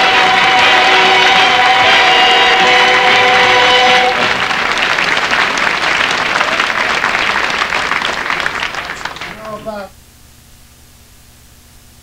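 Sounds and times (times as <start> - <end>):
music ending on held chord: 0.0 - 4.6
audience applauding: 0.0 - 9.8.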